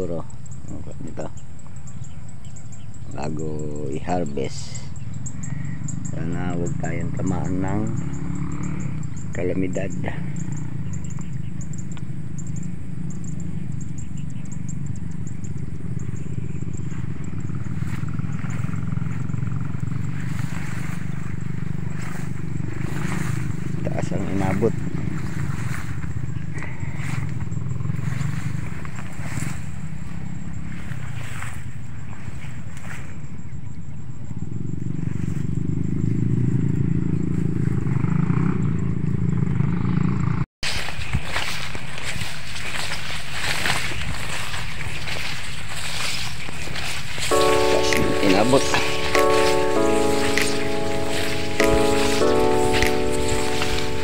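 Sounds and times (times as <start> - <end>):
vehicle engine rumbling: 2.6 - 30.9.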